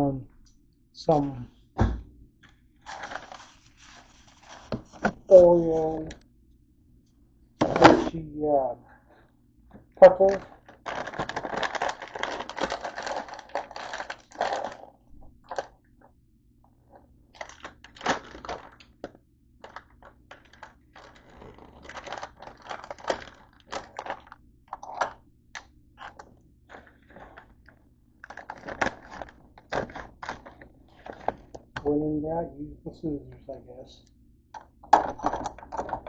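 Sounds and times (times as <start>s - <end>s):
plastic snack bag crinkling: 2.8s - 6.0s, 10.0s - 15.8s, 17.3s - 31.8s
packaging clicks and crackles: 10.1s - 15.7s, 17.3s - 31.8s.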